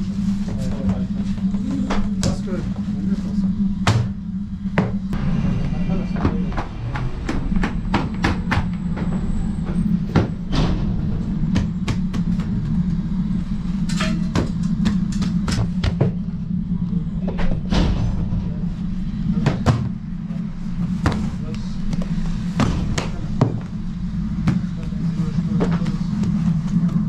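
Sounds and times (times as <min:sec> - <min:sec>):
machinery humming: 0:00.0 - 0:27.0.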